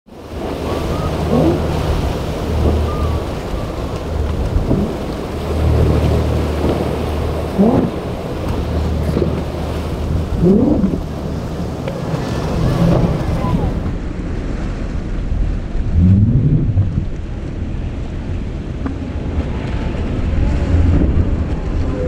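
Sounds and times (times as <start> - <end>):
outboard boat engines droning: 0.1 - 22.0
rushing spray and surf: 0.1 - 22.0
wind buffeting microphone: 0.1 - 22.0.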